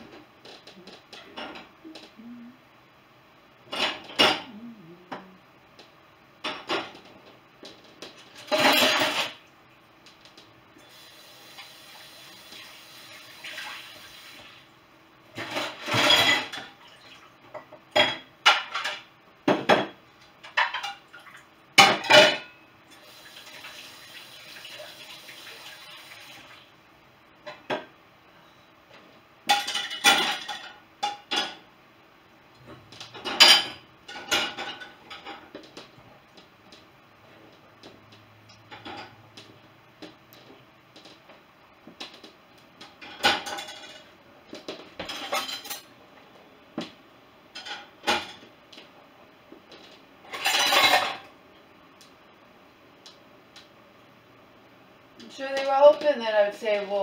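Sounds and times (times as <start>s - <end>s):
kitchen tap running: 10.9s - 14.7s, 22.9s - 26.7s.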